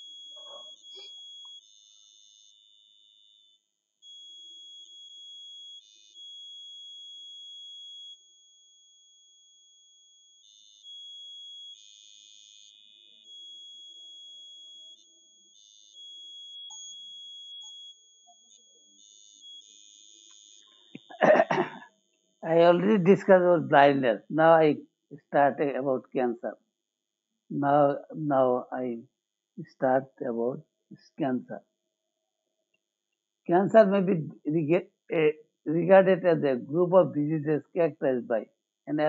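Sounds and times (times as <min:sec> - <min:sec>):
person speaking: 0:21.0 - 0:21.8, 0:22.4 - 0:26.5, 0:27.5 - 0:29.0, 0:29.6 - 0:31.6, 0:33.5 - 0:39.0.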